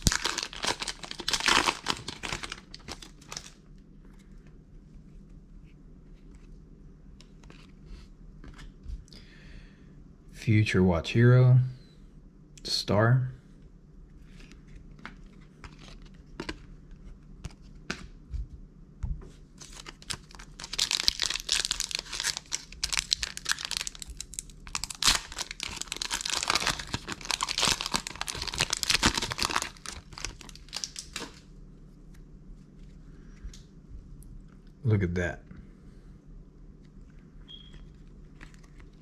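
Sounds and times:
wrapper tearing and crinkling: 0:00.0 - 0:03.6, 0:19.6 - 0:31.4.

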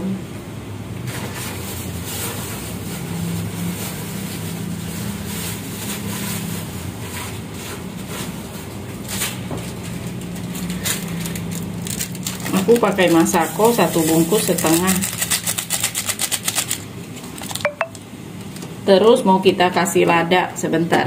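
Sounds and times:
gas burner hum and rush: 0:00.0 - 0:15.8.

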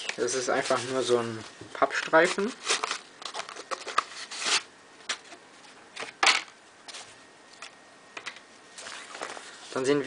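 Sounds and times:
cardboard strip scraping and rustling: 0:00.2 - 0:01.2, 0:01.8 - 0:05.4.

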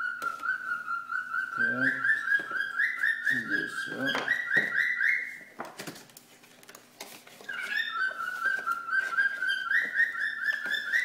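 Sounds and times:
animal chirping calls: 0:00.0 - 0:05.4.

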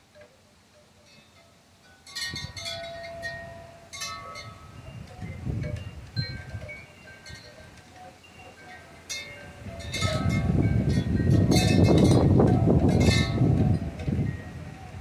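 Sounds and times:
wind chimes ringing: 0:00.1 - 0:15.0
strong wind gust on microphone: 0:04.4 - 0:06.8, 0:09.5 - 0:15.0.

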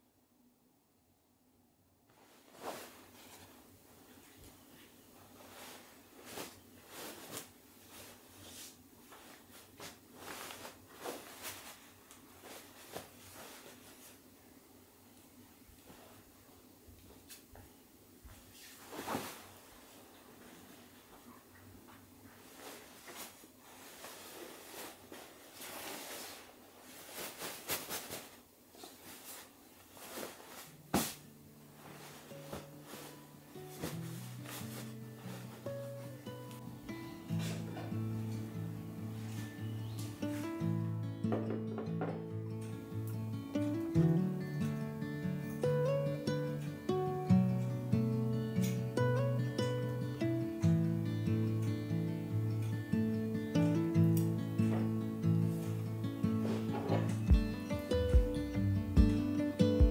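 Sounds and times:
bedding rustling: 0:02.1 - 0:14.7, 0:15.5 - 0:17.6, 0:18.2 - 0:40.8, 0:54.6 - 0:59.9.

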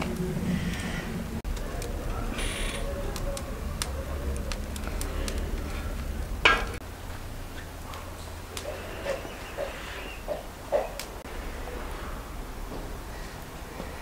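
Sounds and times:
low fire rumble: 0:00.0 - 0:14.0
batter ticking and popping: 0:01.4 - 0:06.7.

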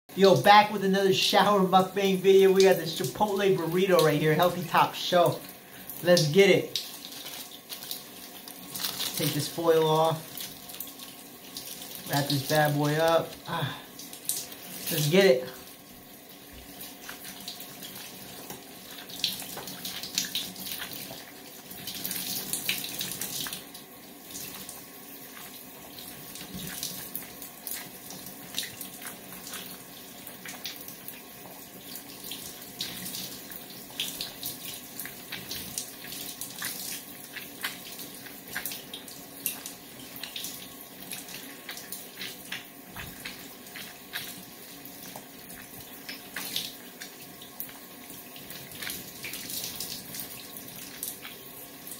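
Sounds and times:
shower spray running: 0:00.4 - 0:51.9
wet clicks and smacks: 0:35.0 - 0:44.4, 0:45.1 - 0:47.8.

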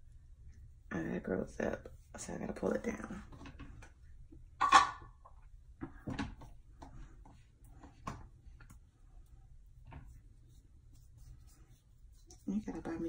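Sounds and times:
knocks and scrapes of handling: 0:03.0 - 0:13.0.

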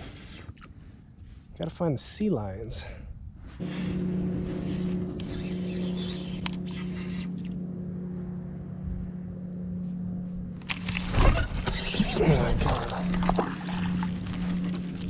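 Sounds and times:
boat motor running: 0:03.6 - 0:15.0.

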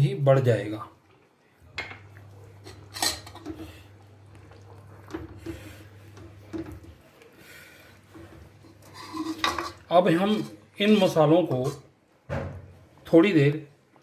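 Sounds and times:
metal ladle scraping metal pot: 0:02.6 - 0:03.8, 0:08.1 - 0:11.9.

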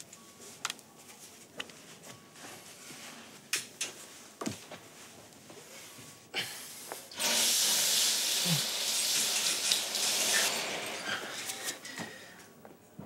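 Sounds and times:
curtain sliding along rail: 0:09.0 - 0:11.9.

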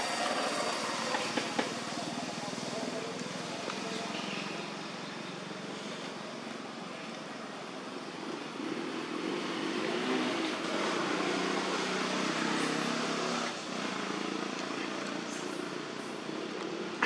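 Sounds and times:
vehicle rushing noise: 0:08.1 - 0:14.6.

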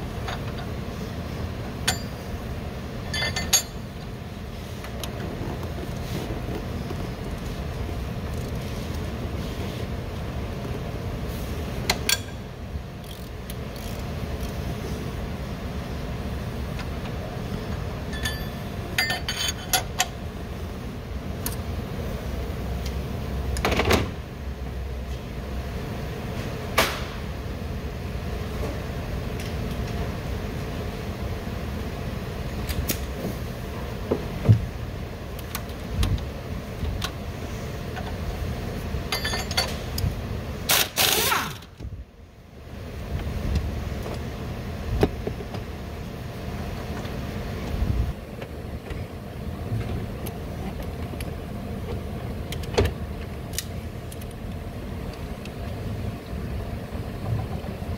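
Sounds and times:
tools clicking and knocking on metal: 0:39.1 - 0:40.0.

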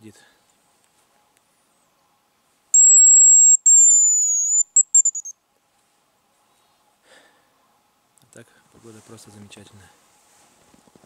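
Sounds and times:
high thin decoy whistle: 0:02.8 - 0:05.3.

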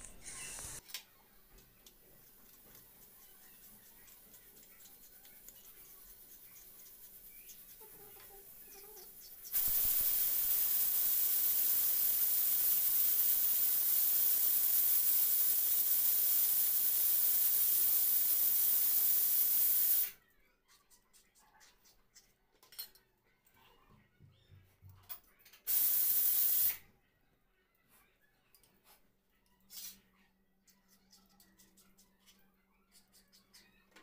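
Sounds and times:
loud steady hiss: 0:09.5 - 0:20.2, 0:25.7 - 0:26.8.

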